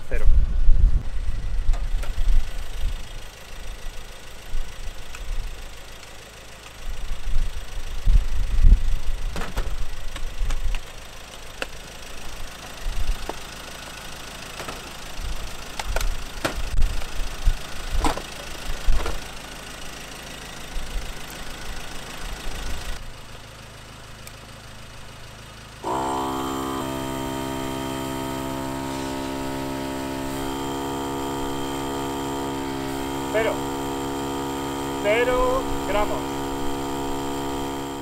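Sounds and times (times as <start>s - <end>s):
pickup engine idling: 0.0s - 38.0s
air compressor humming: 25.8s - 38.0s.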